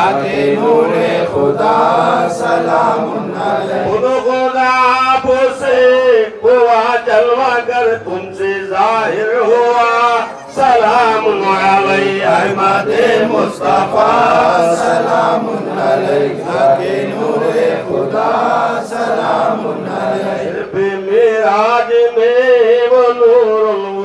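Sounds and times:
men chanting together: 0:00.0 - 0:04.3, 0:10.7 - 0:21.7.

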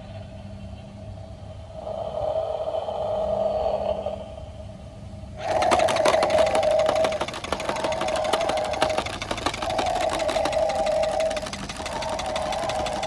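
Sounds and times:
toy truck engine sound effect: 0:05.4 - 0:13.0.

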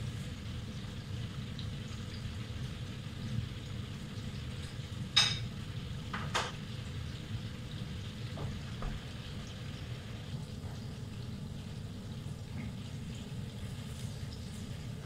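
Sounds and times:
meatballs frying in bubbling oil: 0:00.0 - 0:15.0.

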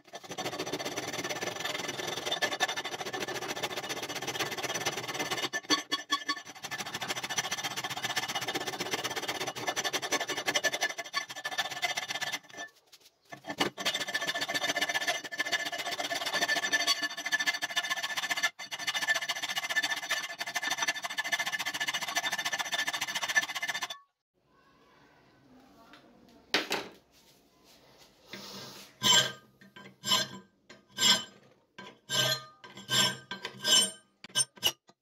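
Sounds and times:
file rasping on steel: 0:00.0 - 0:12.7, 0:13.3 - 0:24.0, 0:29.0 - 0:35.0.

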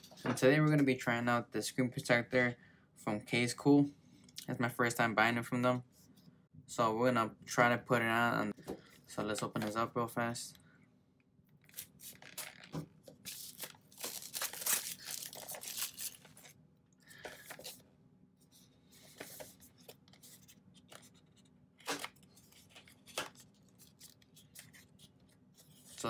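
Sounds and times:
shrink-wrap tearing and crinkling: 0:11.6 - 0:16.6.

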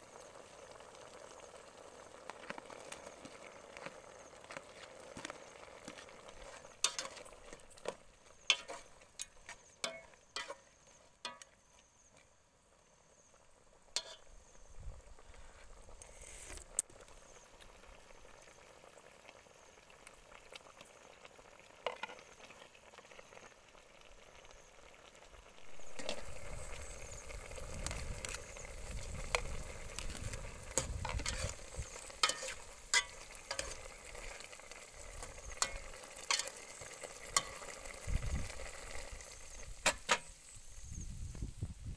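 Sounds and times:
soup simmering in a pot: 0:00.0 - 0:41.3
metal ladle clinking on pot: 0:08.5 - 0:10.6, 0:14.0 - 0:14.3, 0:32.2 - 0:33.8, 0:35.6 - 0:36.5.

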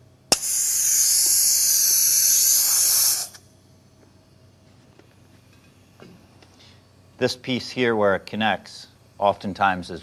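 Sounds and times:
high-pitched oxygen hiss: 0:00.3 - 0:03.4.

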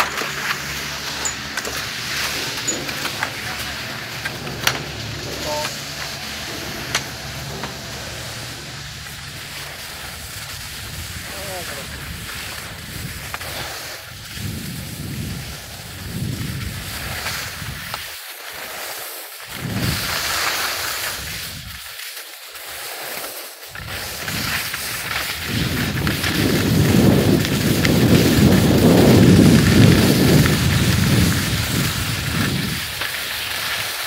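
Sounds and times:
skis sliding over snow: 0:00.0 - 0:34.0
wind buffeting microphone: 0:14.2 - 0:17.9, 0:23.7 - 0:33.0.

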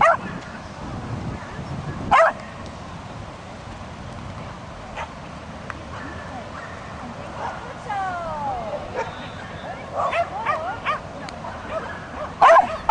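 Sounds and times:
dog barking: 0:00.0 - 0:00.3, 0:02.1 - 0:02.4, 0:09.0 - 0:11.0, 0:11.6 - 0:12.9.

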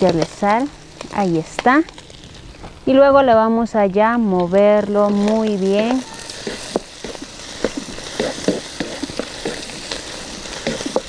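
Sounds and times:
gizzards sizzling in hot oil: 0:00.0 - 0:02.5, 0:04.4 - 0:11.0
wooden spatula scraping a pan: 0:05.0 - 0:11.0.

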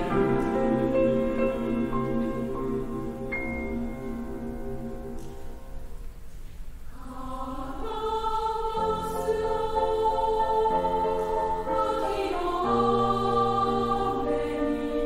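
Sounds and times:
mixed choir singing: 0:00.0 - 0:05.0, 0:06.9 - 0:15.0
piano accompaniment: 0:00.0 - 0:06.3.

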